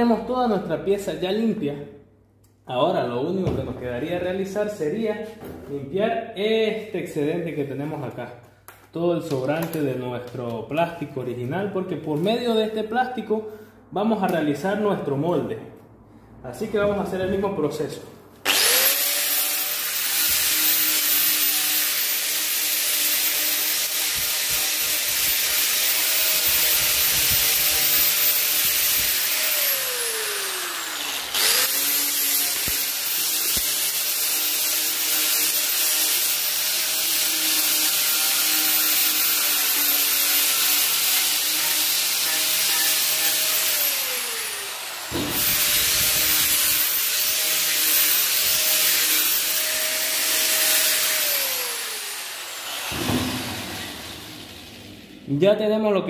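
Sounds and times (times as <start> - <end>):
high-speed power tool whine: 18.4 - 55.2.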